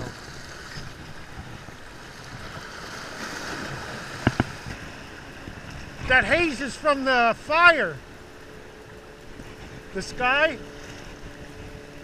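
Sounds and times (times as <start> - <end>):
wind on microphone: 0.0 - 6.7, 8.6 - 12.0
small waves washing against rocks: 0.0 - 6.8.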